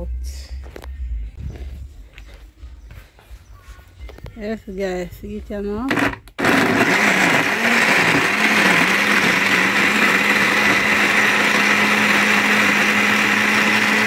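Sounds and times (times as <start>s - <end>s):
blender motor running: 5.9s - 14.0s.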